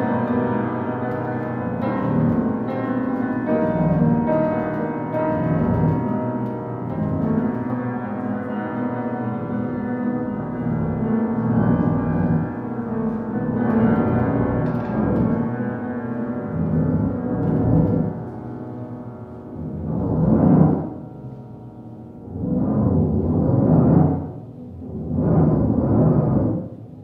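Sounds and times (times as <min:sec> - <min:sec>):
electronic piano drone: 0:00.0 - 0:27.0
upright piano notes: 0:00.0 - 0:27.0.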